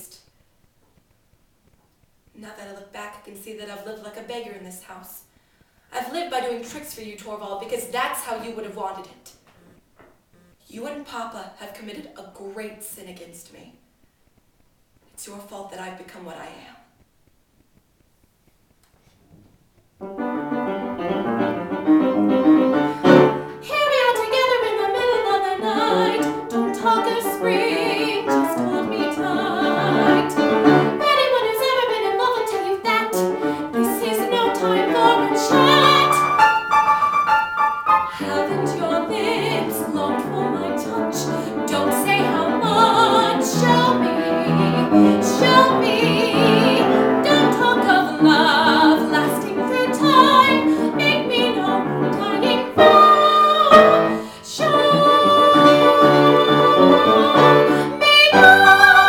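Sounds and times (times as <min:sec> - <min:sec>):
piano accompaniment: 0:20.0 - 0:59.0
young woman singing: 0:23.5 - 0:36.4, 0:38.1 - 0:59.0.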